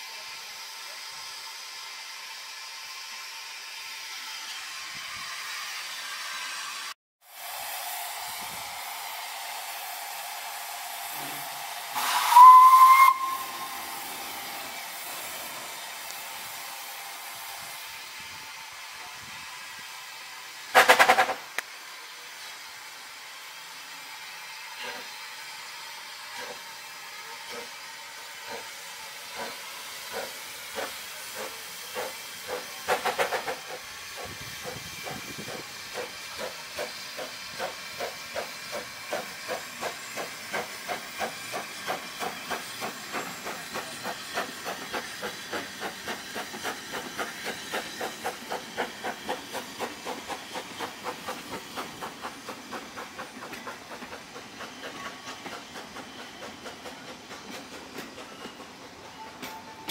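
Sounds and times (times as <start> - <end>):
steam locomotive hissing: 0.0 - 59.9
steam whistle blasts: 11.0 - 14.7.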